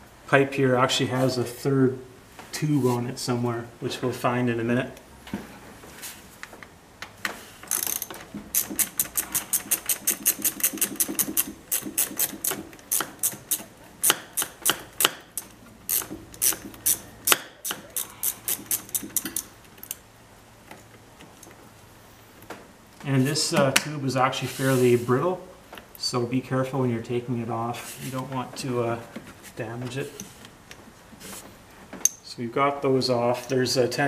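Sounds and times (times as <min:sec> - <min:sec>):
socket ratchet clicking: 0:07.7 - 0:20.0.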